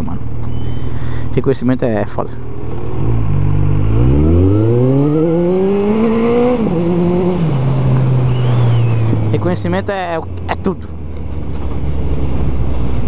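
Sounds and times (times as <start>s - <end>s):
motorcycle engine accelerating: 2.4s - 13.0s
wind noise: 5.7s - 9.5s.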